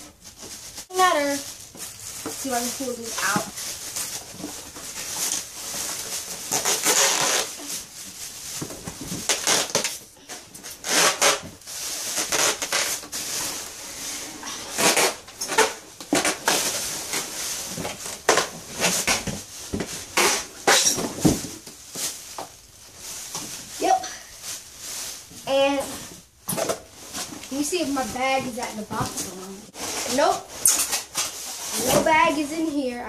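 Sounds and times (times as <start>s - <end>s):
plastic bag crinkling: 0.2s - 25.8s
cardboard box scrapes and knocks: 26.6s - 32.5s.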